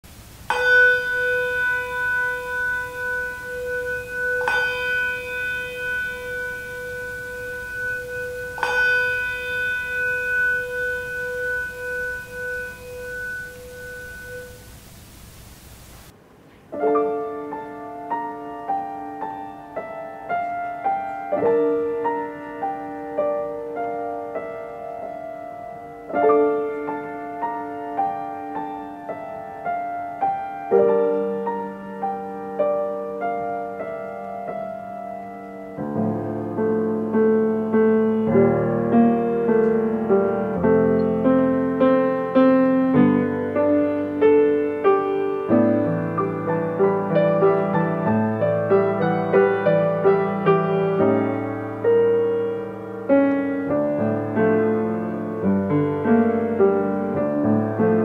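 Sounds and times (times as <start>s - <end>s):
slow solo piano music: 0.0s - 58.0s
bell ringing: 0.5s - 15.2s.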